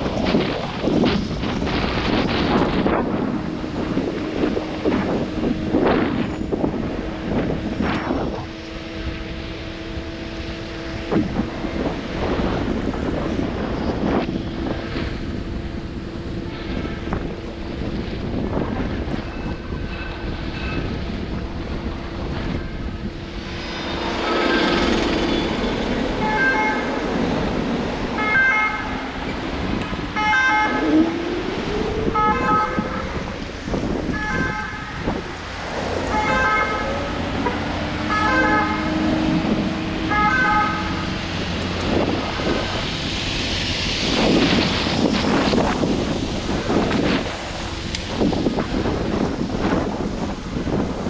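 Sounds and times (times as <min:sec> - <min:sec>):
street traffic: 0:00.0 - 0:51.0
wind on microphone: 0:00.0 - 0:51.0
two-tone emergency siren: 0:24.0 - 0:29.4, 0:30.1 - 0:35.3, 0:35.9 - 0:42.6.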